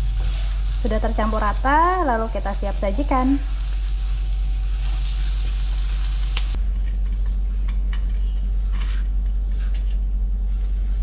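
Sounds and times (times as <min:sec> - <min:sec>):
food sizzling in a pan: 0:00.0 - 0:06.6
steady low hum: 0:00.0 - 0:11.0.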